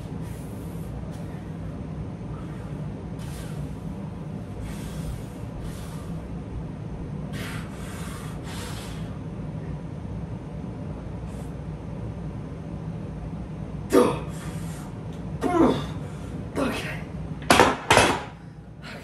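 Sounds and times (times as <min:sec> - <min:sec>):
man breathing heavily: 0:00.0 - 0:10.0, 0:13.9 - 0:17.1, 0:18.4 - 0:19.0
steady low hum: 0:00.0 - 0:19.0.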